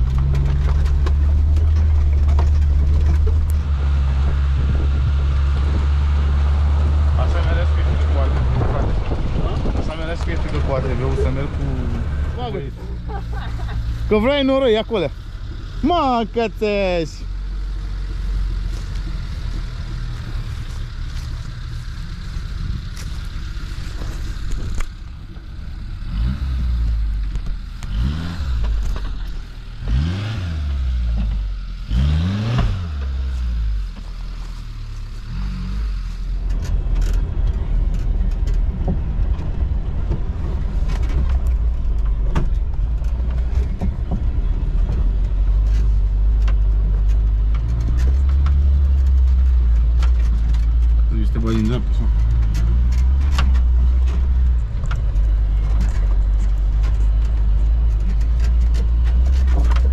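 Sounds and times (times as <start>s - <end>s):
rattles and knocks: 0.0s - 15.7s, 36.4s - 59.9s
engine drone inside cab: 0.0s - 59.9s
off-road engine revving: 0.0s - 59.9s.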